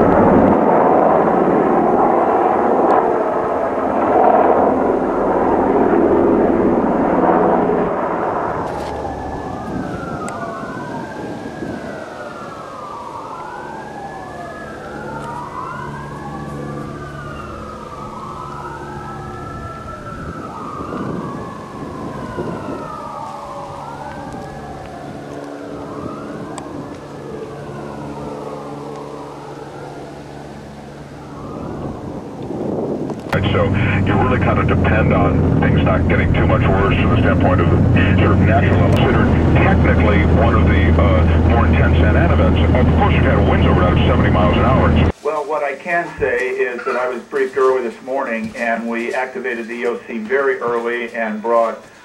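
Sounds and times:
emergency sirens wailing: 0:00.0 - 0:52.0
low steady hum: 0:33.4 - 0:45.1
loud rushing noise: 0:33.4 - 0:45.4.

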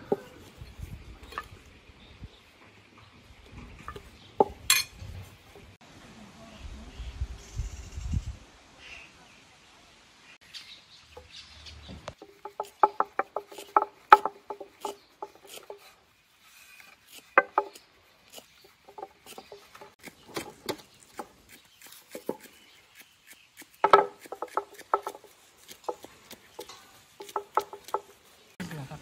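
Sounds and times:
rolling pin clacking on wooden board: 0:12.2 - 0:15.8, 0:17.4 - 0:17.8, 0:23.8 - 0:28.2.

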